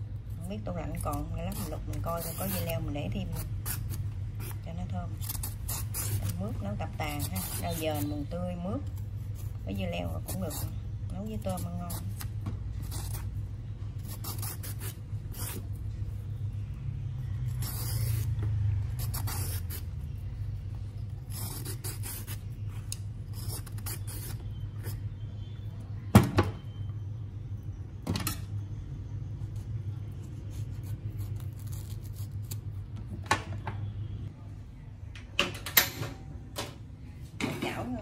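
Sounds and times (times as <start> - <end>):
peeler scraping gourd skin: 0.4 - 15.9, 17.4 - 20.4, 21.0 - 25.2, 30.2 - 32.9.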